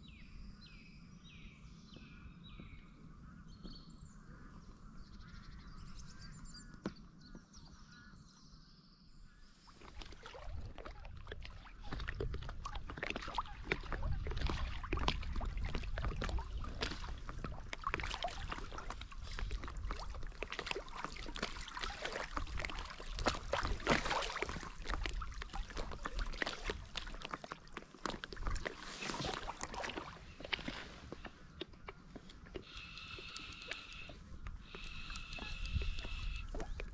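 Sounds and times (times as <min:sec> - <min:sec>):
water splashing and sloshing: 0:09.6 - 0:36.9.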